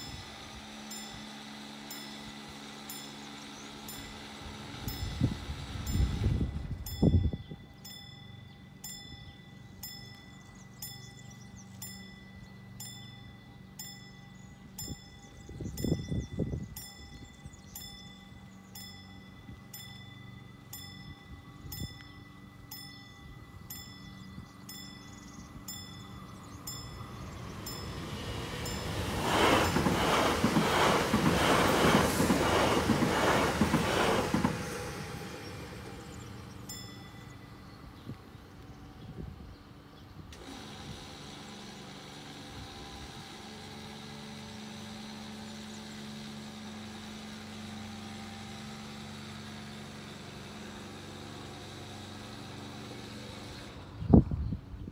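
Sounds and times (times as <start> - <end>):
level crossing warning bell: 0.0 - 30.0, 34.9 - 38.4
electric train passing: 0.0 - 54.8.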